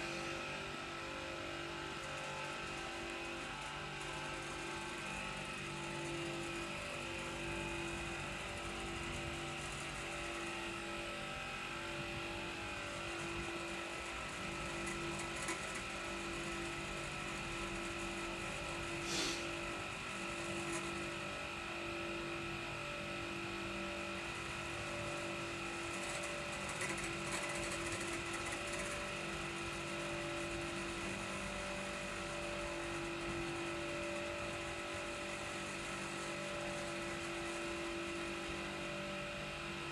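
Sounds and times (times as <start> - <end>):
air compressor running: 0.0 - 39.5.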